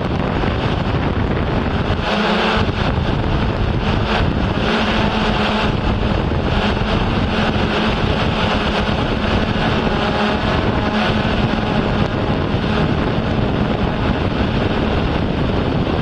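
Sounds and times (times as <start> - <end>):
drone propeller hum: 0.0 - 16.0
wind rushing over microphone: 0.0 - 16.0.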